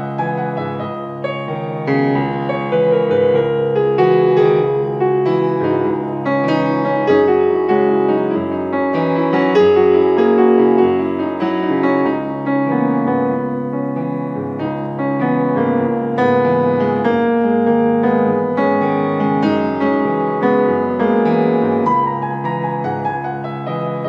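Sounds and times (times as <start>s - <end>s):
piano piece: 0.0s - 24.0s.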